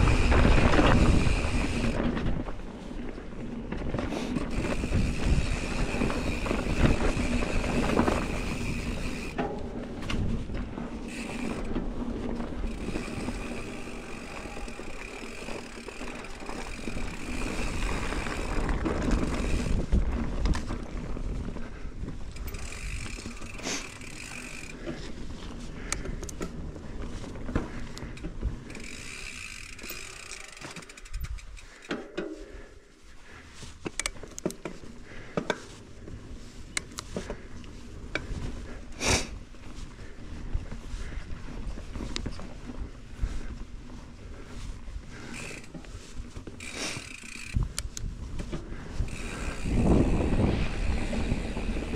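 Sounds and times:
bike freewheel buzzing: 0:00.0 - 0:03.2, 0:04.0 - 0:26.2, 0:27.5 - 0:32.0, 0:44.4 - 0:51.9
bike rattles and knocks: 0:00.0 - 0:51.9
tyre and trail noise: 0:00.0 - 0:51.9.

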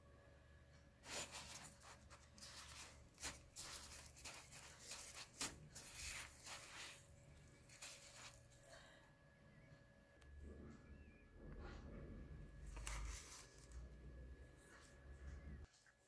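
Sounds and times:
seeds rustling and scratching: 0:01.0 - 0:08.6.

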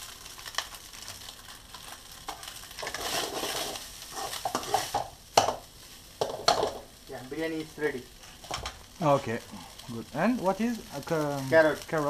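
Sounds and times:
rice sizzling in a pan: 0:00.0 - 0:12.0
metal spoon scraping a pan: 0:02.3 - 0:05.0.

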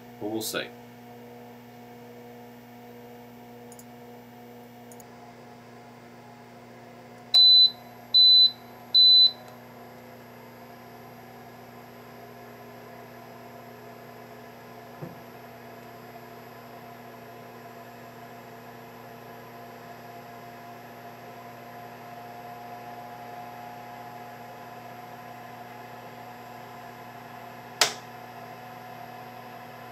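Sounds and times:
steady appliance hum: 0:00.0 - 0:29.9
short high beeps: 0:07.4 - 0:09.4.

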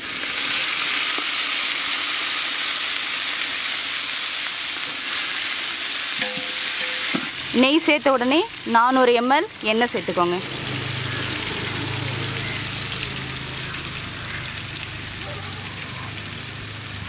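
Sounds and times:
onions sizzling in oil: 0:00.0 - 0:17.0.

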